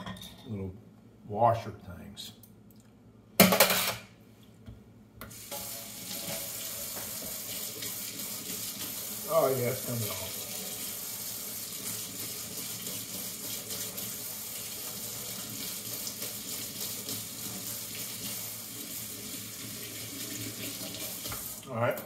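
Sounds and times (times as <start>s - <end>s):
faucet running into metal sink: 5.3s - 21.7s
water splashing over small parts: 5.4s - 21.6s.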